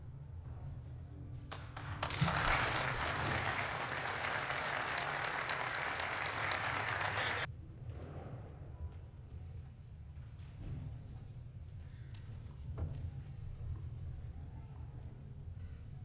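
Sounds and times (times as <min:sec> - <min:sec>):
crowd applauding: 0:01.5 - 0:07.5.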